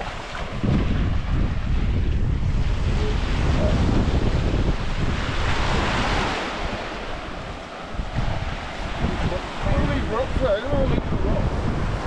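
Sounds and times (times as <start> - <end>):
small waves breaking on beach: 0.0 - 12.0
wind buffeting microphone: 0.0 - 12.0.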